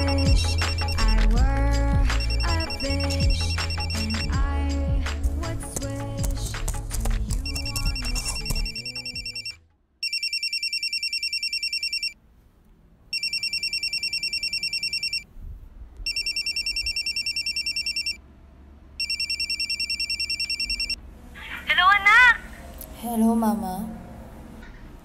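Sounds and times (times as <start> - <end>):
mobile phone ringing: 0.0 - 1.4, 2.1 - 4.4, 7.3 - 12.2, 13.1 - 15.3, 16.1 - 18.2, 19.0 - 21.0
background music: 0.0 - 9.7.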